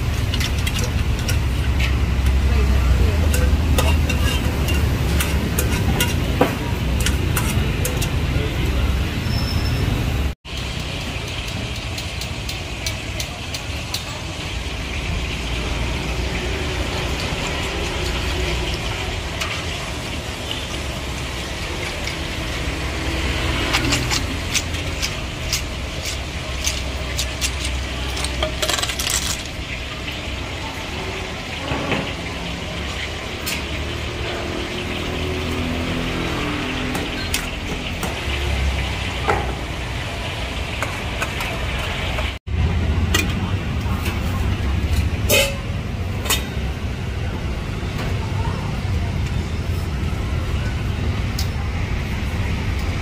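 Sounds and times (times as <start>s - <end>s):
utensils clinking against pots: 0.0s - 9.8s, 10.5s - 15.3s, 16.3s - 39.8s, 43.1s - 46.7s
street traffic rumble: 0.0s - 53.0s.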